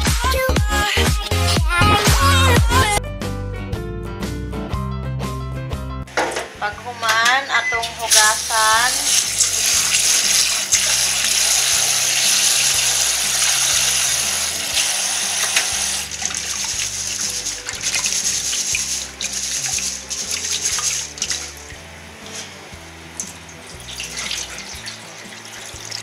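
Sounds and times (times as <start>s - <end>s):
tap water running into bowl: 8.1s - 21.8s, 23.2s - 26.0s
hand swishing rice in water: 9.1s - 21.7s, 23.9s - 26.0s.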